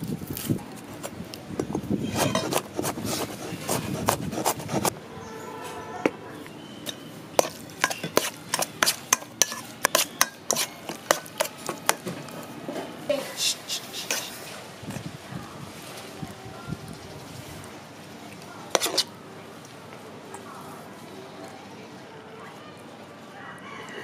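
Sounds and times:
knife chopping on wooden board: 2.2s - 4.9s, 7.4s - 12.1s.

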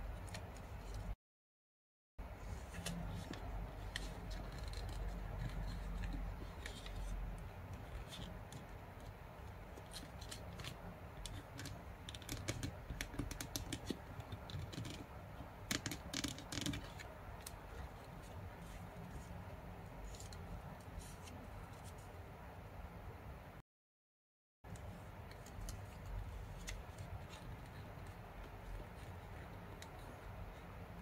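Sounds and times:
paper being folded and creased: 2.4s - 8.8s.

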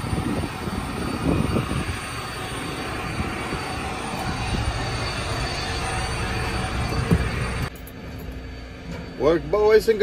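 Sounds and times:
diesel truck engine idling: 0.0s - 7.8s
faint steady whine: 0.0s - 10.0s.

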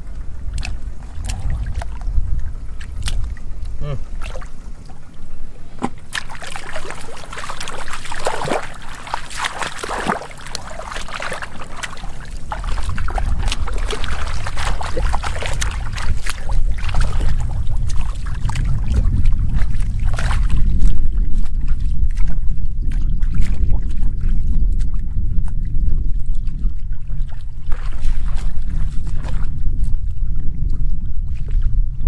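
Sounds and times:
steady low rumble: 0.0s - 32.0s
hands splashing in muddy water: 5.8s - 25.0s, 26.3s - 29.8s.

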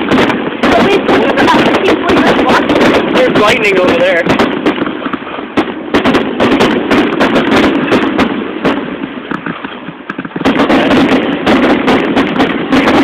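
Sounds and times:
fireworks cracking and popping: 0.0s - 13.0s
steady rumble: 0.0s - 13.0s.

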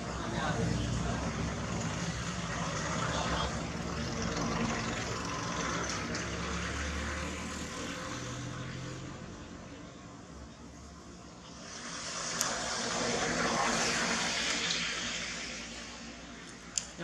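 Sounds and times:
motor vehicle passing: 0.0s - 10.4s, 11.1s - 17.0s.

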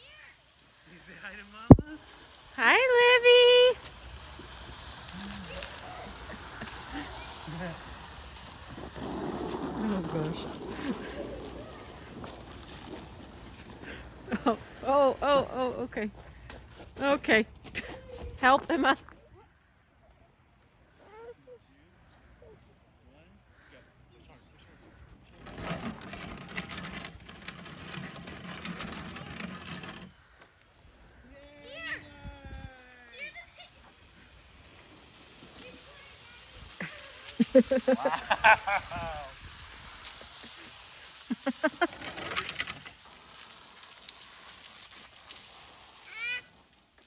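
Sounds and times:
crunching and scraping on ice: 4.2s - 14.8s, 34.8s - 47.0s.

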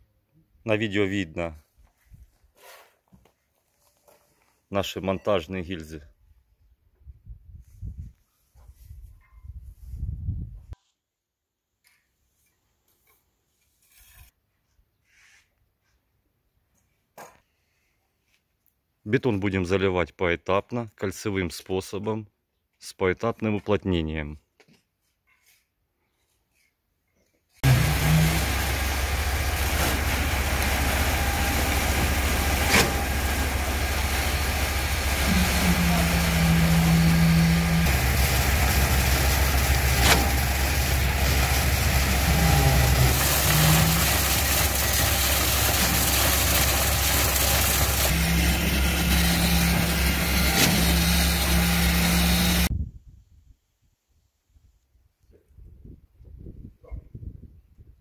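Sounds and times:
high whine: 27.6s - 52.7s
pump engine running: 27.6s - 52.7s.

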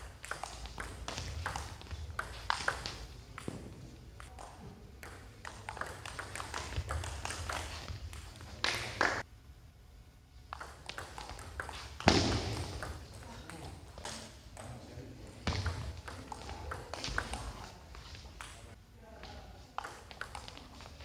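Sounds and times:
table tennis ball clicking: 10.5s - 13.2s.

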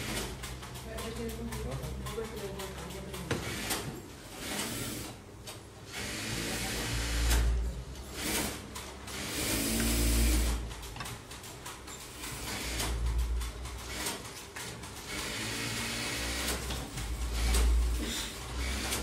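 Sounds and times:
sewing machine running: 2.1s - 5.2s, 5.9s - 10.8s, 12.1s - 19.0s.

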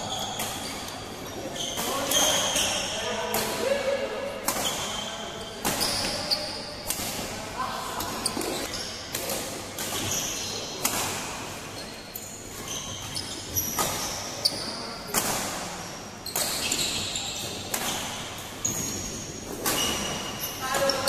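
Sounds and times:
shoes squeaking on court: 0.0s - 3.1s, 4.5s - 21.0s
rackets smacking shuttlecock: 15.1s - 21.0s.

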